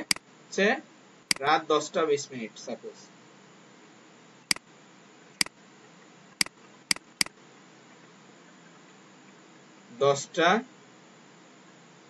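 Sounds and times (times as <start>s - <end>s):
mouse and keyboard clicks: 0.0s - 0.2s, 6.9s - 7.3s
faint room hiss: 0.0s - 12.0s.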